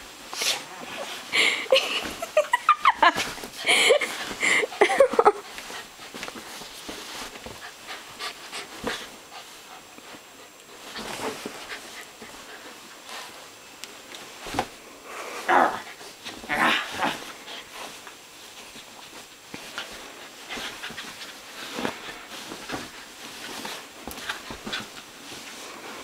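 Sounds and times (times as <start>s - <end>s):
scuffling on a couch: 0.6s - 13.5s, 14.2s - 14.8s, 15.8s - 26.0s
dog panting: 7.5s - 13.4s.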